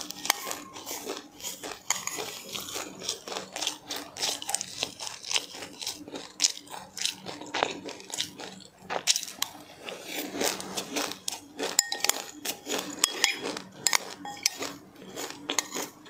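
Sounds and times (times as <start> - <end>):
crunching and chewing seeds: 0.0 - 16.0
utensil clinking against dish: 1.8 - 2.6, 11.7 - 16.0.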